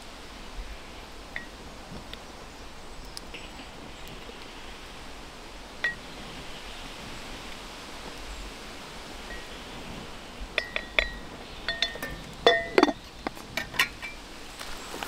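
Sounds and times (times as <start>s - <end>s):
faint outdoor hiss: 0.0s - 15.0s
ceramic and glass clinking: 10.6s - 14.2s.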